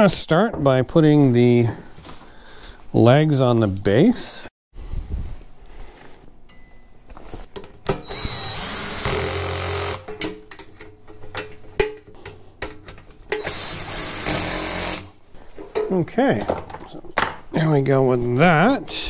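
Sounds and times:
cordless drill driving a bolt: 8.0 - 10.1, 13.3 - 15.1.

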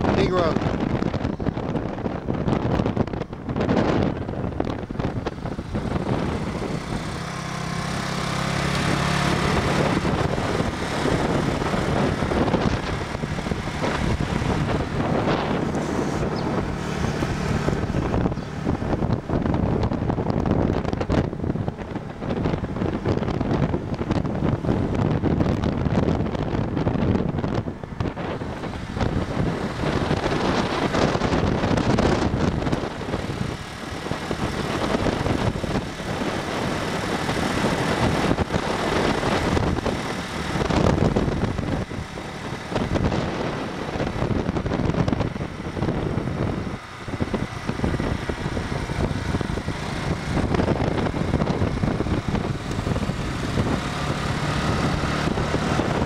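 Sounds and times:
motorbike engine: 0.0 - 56.0
road noise: 0.0 - 56.0
wind buffeting microphone: 0.0 - 56.0.

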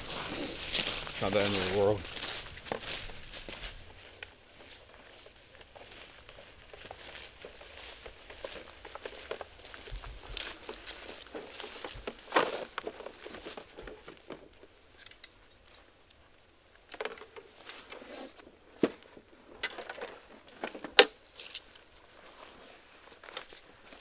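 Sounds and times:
footsteps through dry grass: 0.0 - 15.0, 17.4 - 24.0
fishing gear clicks and knocks: 6.4 - 16.2, 16.8 - 18.0, 18.8 - 21.9.

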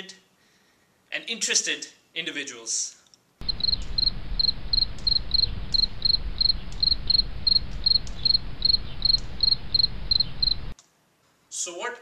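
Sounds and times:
low rumbling hum: 3.4 - 10.7
crickets chirping: 3.4 - 10.8.

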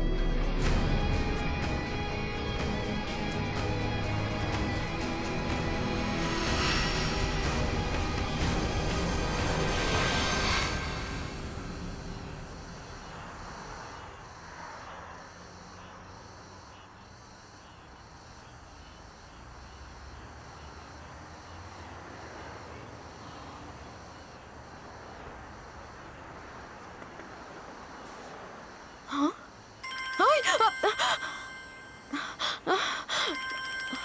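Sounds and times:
city traffic hum: 0.0 - 34.0
mobile phone ringtone: 29.8 - 34.0.

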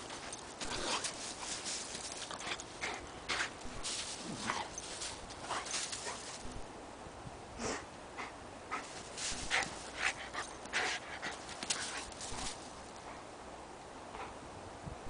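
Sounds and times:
dog rolling in crunching snow: 0.0 - 6.6, 8.8 - 12.8.

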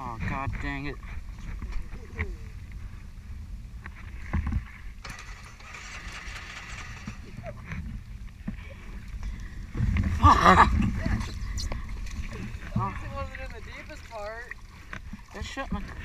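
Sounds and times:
floodwater sloshing: 4.0 - 16.0.

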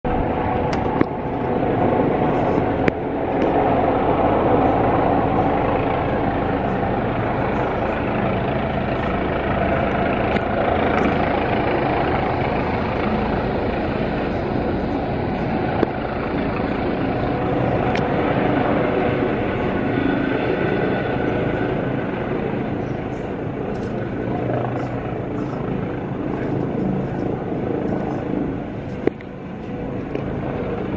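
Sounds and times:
helicopter rotor and turbine: 0.0 - 30.9.

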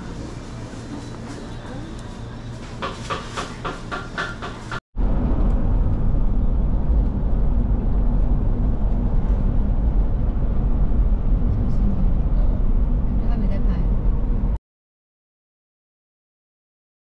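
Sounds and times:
car driving road noise: 5.0 - 14.6.

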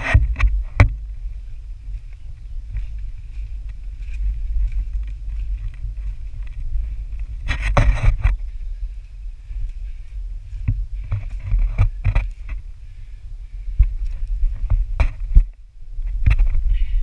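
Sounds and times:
knocks and scrapes: 0.0 - 1.1, 2.7 - 8.5, 10.6 - 12.6, 13.8 - 16.8
wind rumble on microphone: 0.0 - 17.0.

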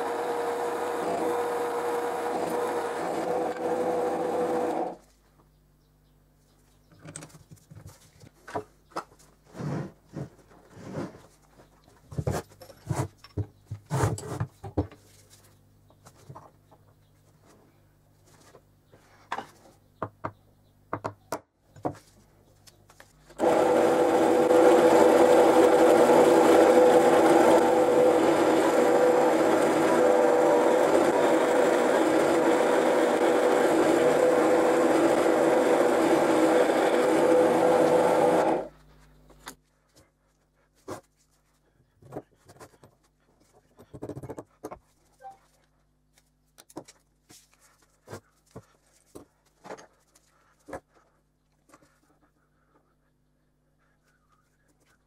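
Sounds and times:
drill press drilling metal: 0.0 - 5.0, 23.4 - 38.7.

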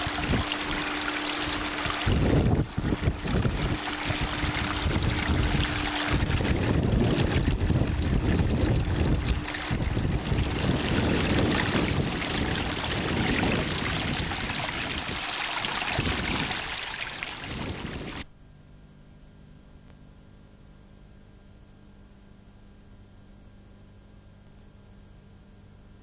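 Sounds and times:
water rushing: 0.0 - 18.2
wind: 0.0 - 18.4
faint steady hum: 0.0 - 26.0.

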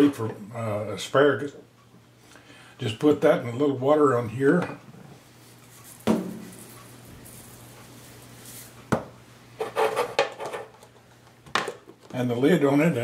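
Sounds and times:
knock on counter: 6.1 - 6.5, 8.9 - 9.1.

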